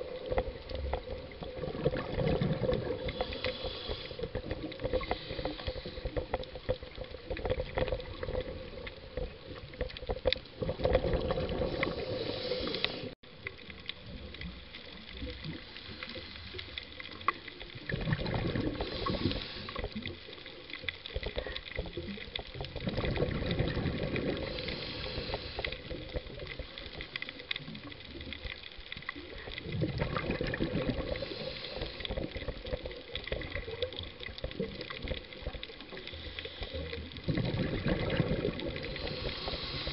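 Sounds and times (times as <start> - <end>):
exhaled bubbles rushing: 0.0 - 3.5, 4.1 - 15.8, 16.8 - 20.5, 21.3 - 36.1, 37.0 - 39.9
steady watery hiss: 0.0 - 39.9
scuba regulator breathing: 2.5 - 6.6, 11.4 - 13.2, 15.6 - 16.9, 18.5 - 20.0, 23.9 - 26.2, 30.9 - 32.6, 35.9 - 37.2, 38.1 - 39.9.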